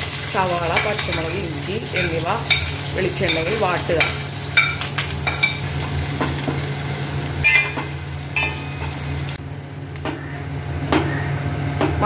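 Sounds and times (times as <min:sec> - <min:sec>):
onions sizzling in oil: 0:00.0 - 0:09.4.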